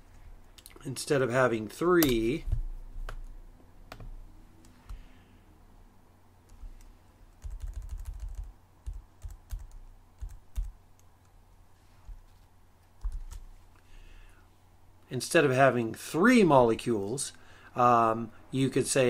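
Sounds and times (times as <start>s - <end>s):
typing on computer keyboard: 7.4s - 10.7s.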